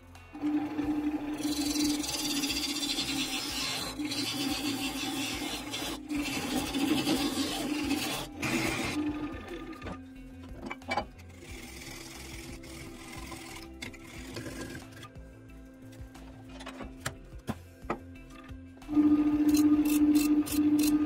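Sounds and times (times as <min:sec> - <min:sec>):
lathe motor hum: 0:00.4 - 0:10.0
tool scraping spinning wood: 0:01.0 - 0:10.0, 0:10.7 - 0:15.1.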